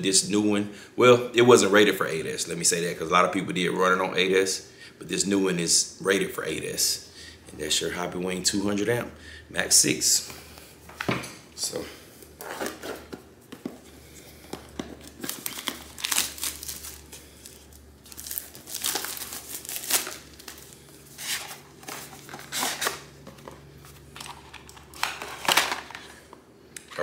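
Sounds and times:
packaging crinkling and rustling: 12.4 - 26.4.

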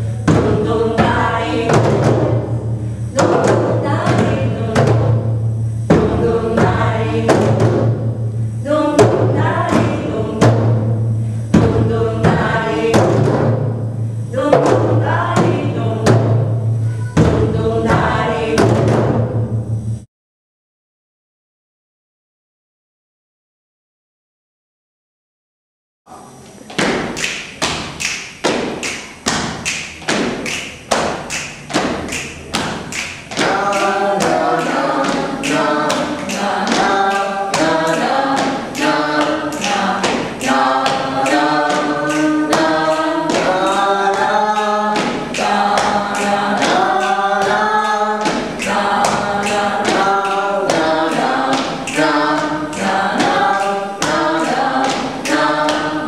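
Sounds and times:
group singing: 0.0 - 19.2, 27.0 - 56.0
hand claps and chest pats: 26.7 - 56.0.

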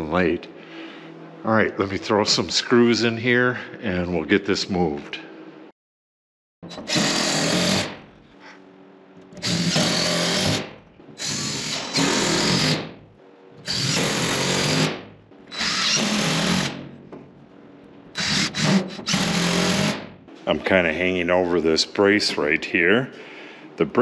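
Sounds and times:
cordless drill driving screws: 6.7 - 7.9, 9.4 - 10.6, 11.2 - 12.8, 13.7 - 16.8, 18.2 - 20.0.

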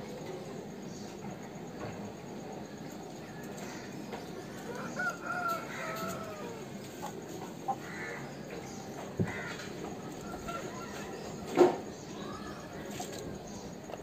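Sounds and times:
rooster crowing: 4.6 - 6.8.

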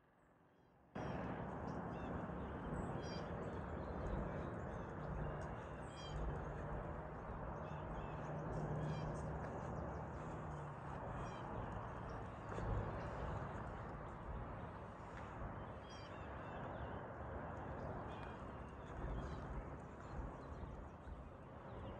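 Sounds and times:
birds calling: 1.6 - 17.0.

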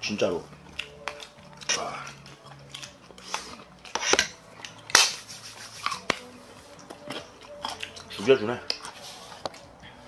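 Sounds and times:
noisy eating: 0.0 - 10.0
chopsticks clicking against bowls: 0.7 - 5.2.

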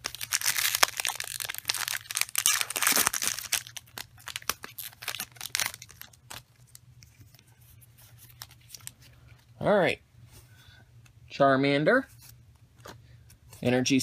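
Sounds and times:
foil pack tearing and crinkling: 0.0 - 6.8
cards rustling in wrapper: 0.0 - 9.5.

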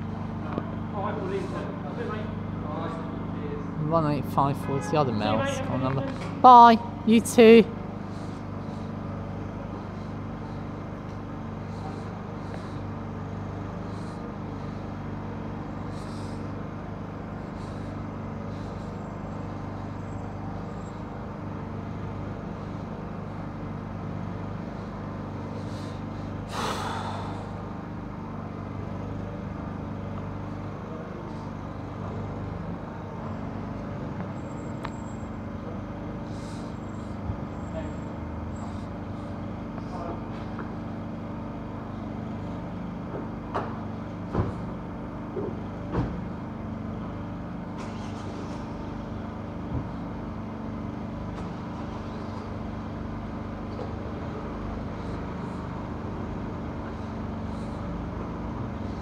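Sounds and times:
vehicle engine idling: 0.0 - 59.0.

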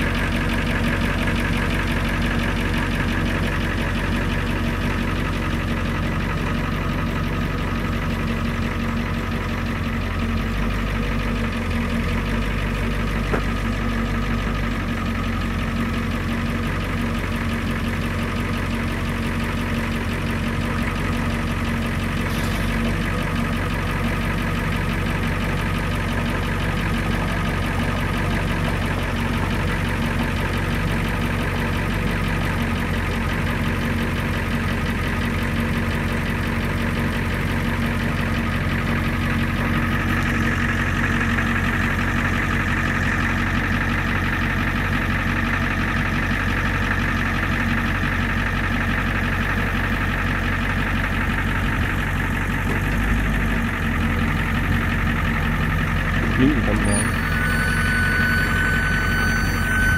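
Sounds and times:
diesel engine idling: 0.0 - 59.9
high-pitched whine: 56.4 - 59.9.

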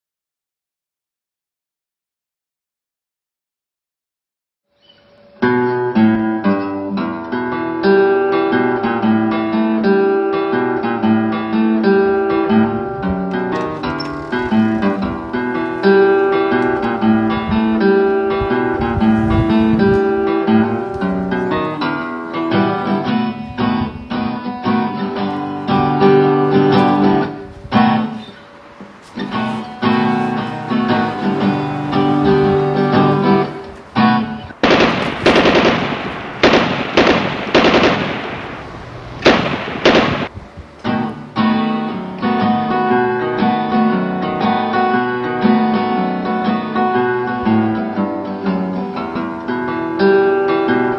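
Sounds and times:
acoustic guitar music: 4.7 - 50.9
automatic gunfire bursts: 34.6 - 40.4.

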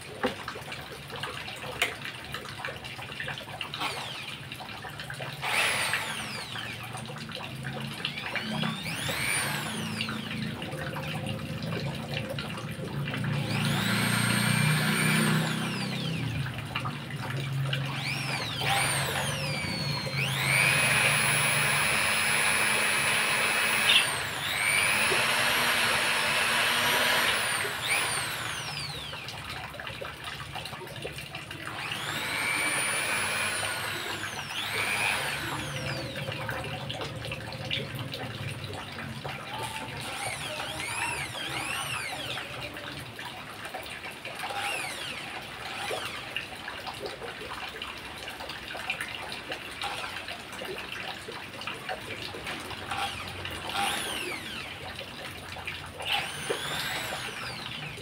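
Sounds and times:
electric drill motor whine: 3.8 - 4.5, 5.4 - 7.0, 7.8 - 10.6, 13.3 - 16.7, 17.4 - 29.4, 31.7 - 36.5, 39.5 - 42.6, 44.5 - 46.3, 49.8 - 50.1, 52.8 - 54.9, 56.0 - 58.0.

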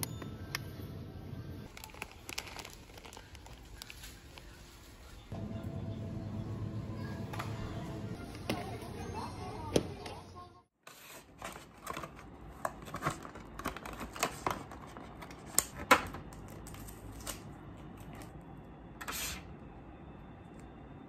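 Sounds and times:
plastic container crackling: 1.7 - 4.6.

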